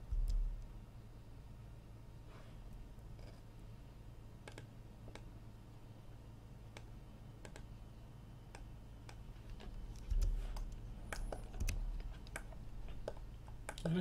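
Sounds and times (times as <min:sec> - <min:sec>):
keyboard and mouse clicks: 0:00.0 - 0:00.7, 0:04.4 - 0:05.3, 0:06.7 - 0:07.7, 0:08.5 - 0:14.0
steady low hum: 0:00.0 - 0:14.0.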